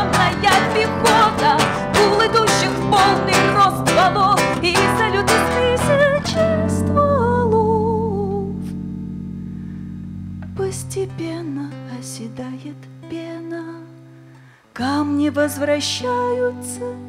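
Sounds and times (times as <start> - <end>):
acoustic guitar strummed hard: 0.0 - 7.2, 8.0 - 12.0
person singing: 0.0 - 8.8, 10.4 - 14.0, 14.8 - 17.0
electric bass guitar: 0.0 - 13.0.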